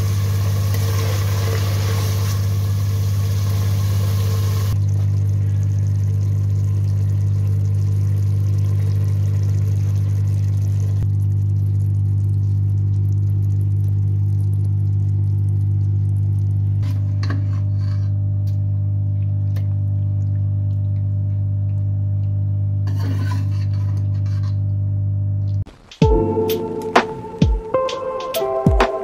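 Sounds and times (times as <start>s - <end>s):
low machine hum: 0.0s - 27.9s
metal spoon scraping steel bowl: 22.9s - 24.6s.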